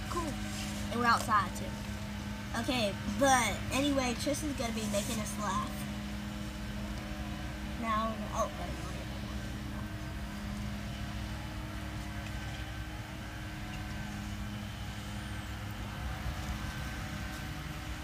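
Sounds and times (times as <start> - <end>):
constant hum: 0.0 - 18.0
low outdoor rumble: 0.0 - 18.0.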